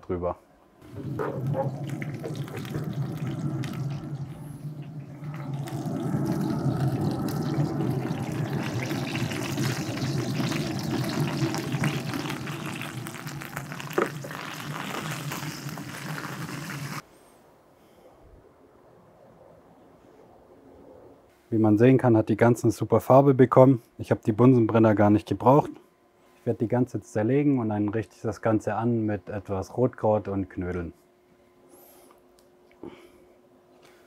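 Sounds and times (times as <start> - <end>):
fan whirring: 0.8 - 15.0.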